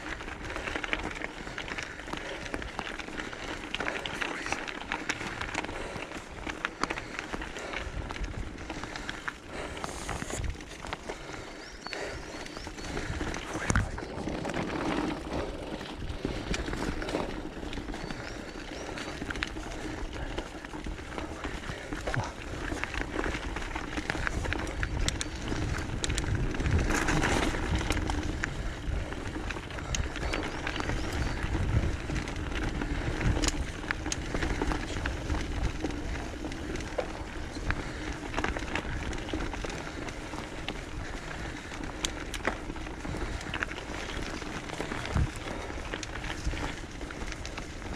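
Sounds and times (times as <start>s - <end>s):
bike chain and frame rattling: 0.0s - 47.9s
bike tyres crunching on gravel: 0.0s - 47.9s.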